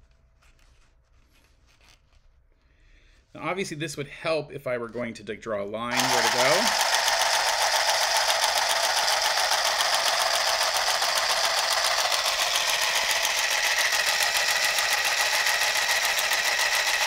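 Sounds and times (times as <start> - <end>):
sewing machine needle clattering: 6.0 - 17.0.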